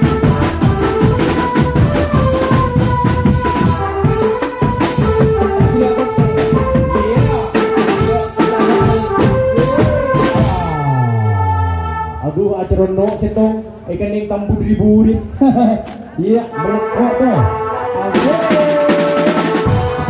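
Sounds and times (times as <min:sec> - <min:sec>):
fast drum beats: 0:00.0 - 0:11.1, 0:18.1 - 0:20.0
held stepping melody: 0:00.0 - 0:12.2.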